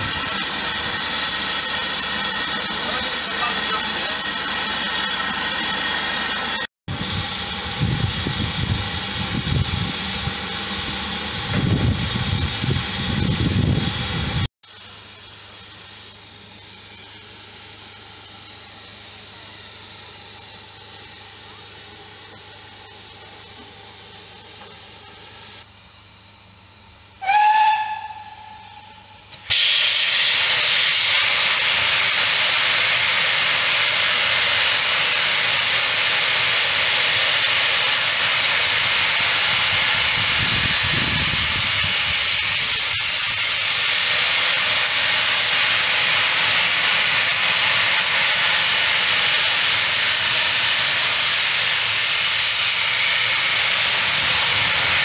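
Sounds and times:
steam hissing: 0.0s - 25.7s, 27.2s - 55.0s
steam whistle blast: 27.2s - 32.1s.

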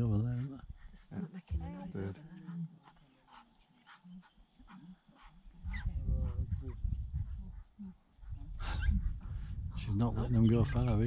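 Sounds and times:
low rumble: 5.7s - 7.7s.

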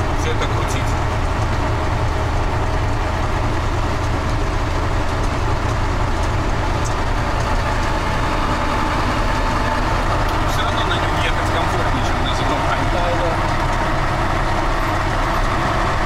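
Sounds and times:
drivetrain and road noise: 0.0s - 16.0s
truck diesel engine droning: 0.0s - 16.0s.

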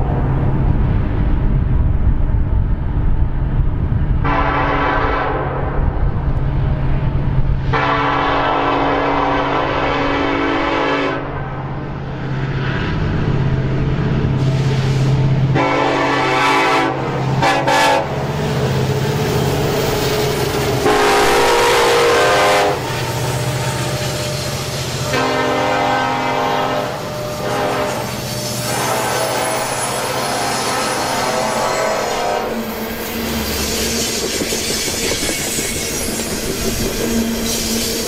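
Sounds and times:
train air horn blasts: 4.2s - 5.8s, 7.6s - 11.4s, 14.4s - 18.2s, 20.8s - 24.1s, 25.0s - 32.8s.

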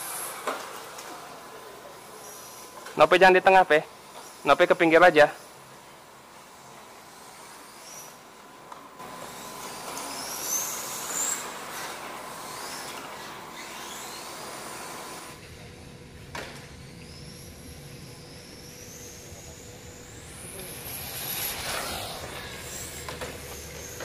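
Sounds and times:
toy car electric motor whine: 6.6s - 8.3s, 9.0s - 15.4s, 16.6s - 24.0s.

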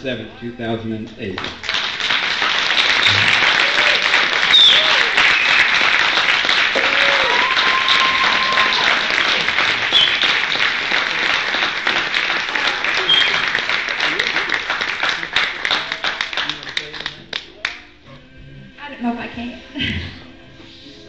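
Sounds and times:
audience applause: 1.6s - 17.8s.

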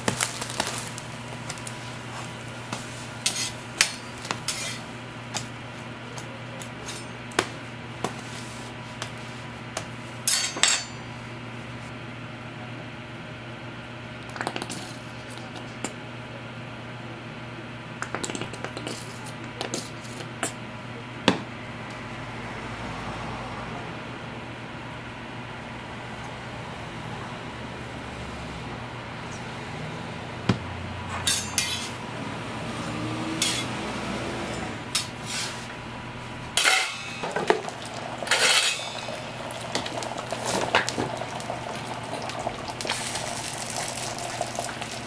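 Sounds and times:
steady low hum: 0.0s - 45.0s
tongs clacking on steel griddle: 31.3s - 31.9s, 36.6s - 37.3s, 38.3s - 39.2s.

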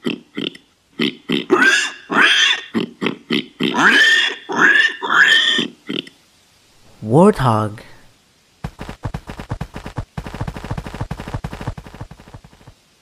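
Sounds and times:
warthog grunting and squealing: 3.6s - 6.1s.

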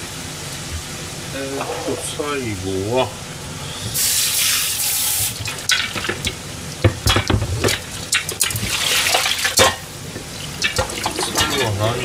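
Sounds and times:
water splashing: 3.9s - 12.0s
metal bowls clinking: 10.6s - 12.0s.

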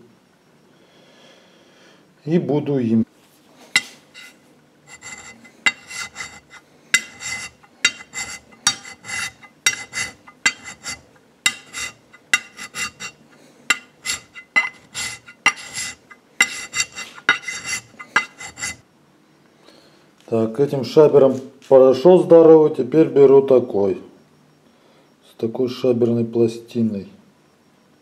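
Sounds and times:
hand scraper rasping on steel: 3.8s - 18.8s.

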